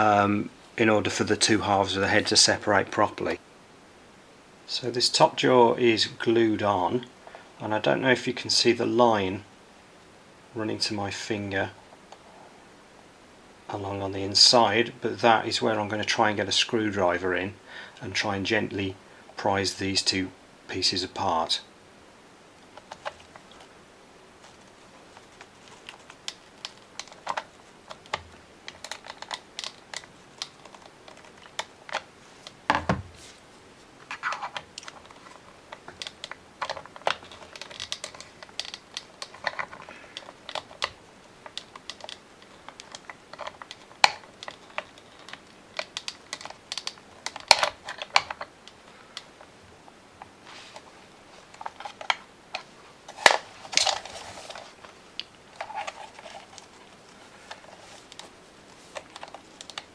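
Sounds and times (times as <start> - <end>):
sharp plastic clicks: 25.3 - 32.6, 34.1 - 49.3.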